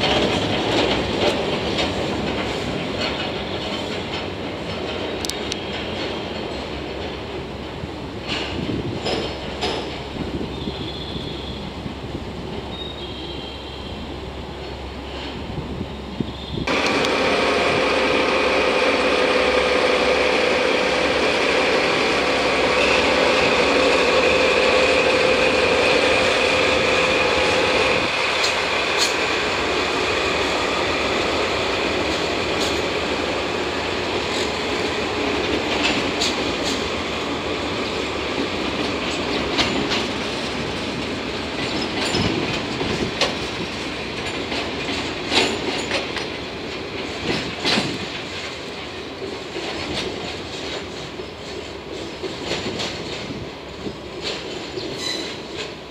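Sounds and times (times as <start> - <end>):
wheels clicking over rail joints: 0.0 - 11.0, 22.0 - 55.9
rumble of train: 0.0 - 55.9.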